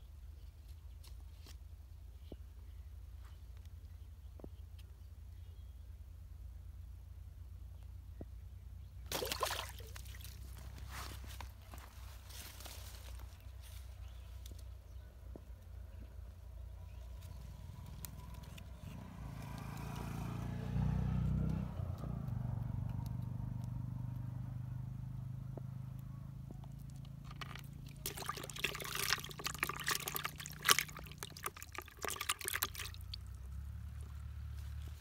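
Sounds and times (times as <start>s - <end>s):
fish splashing in a bucket: 9.1s - 10.8s, 27.2s - 33.4s.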